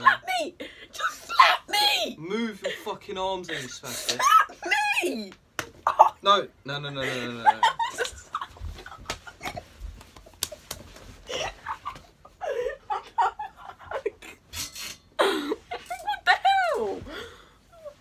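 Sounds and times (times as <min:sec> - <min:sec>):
boys laughing: 0:05.8 - 0:06.3, 0:07.0 - 0:14.5, 0:15.2 - 0:17.1
knocks and smacks from scuffling: 0:08.4 - 0:12.2.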